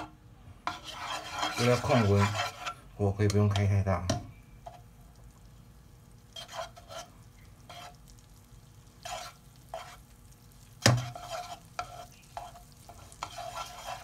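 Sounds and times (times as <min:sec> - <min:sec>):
spatula scraping pan: 0:00.0 - 0:03.9, 0:04.6 - 0:04.9, 0:06.2 - 0:14.0
faint butter sizzle: 0:00.7 - 0:14.0
spatula knocking against pan: 0:10.8 - 0:11.3.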